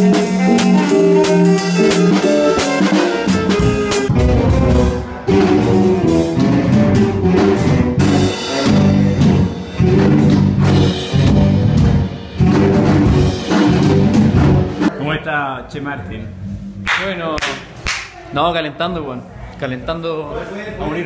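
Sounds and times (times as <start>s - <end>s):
drum kit steady beat: 0.0s - 15.0s
full band music: 0.0s - 15.0s.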